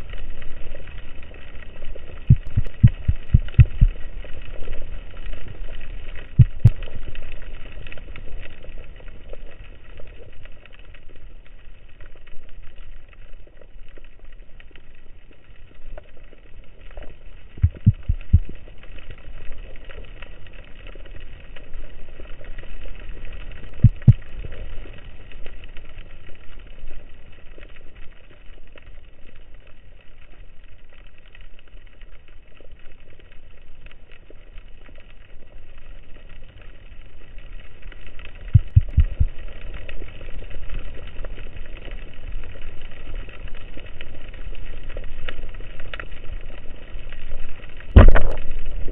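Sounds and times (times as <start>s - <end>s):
underwater hiss and crackle: 0.0s - 48.9s
low underwater thumps: 2.3s - 3.9s, 6.4s - 6.8s, 17.6s - 18.5s, 23.8s - 24.2s, 38.6s - 39.3s, 48.0s - 48.6s.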